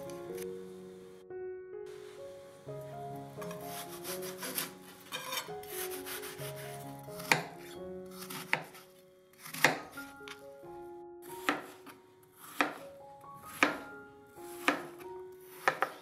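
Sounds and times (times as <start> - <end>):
soft background music: 0.0 - 16.0
knife cutting apple: 3.4 - 10.4, 11.3 - 12.9, 13.5 - 13.9, 14.5 - 16.0.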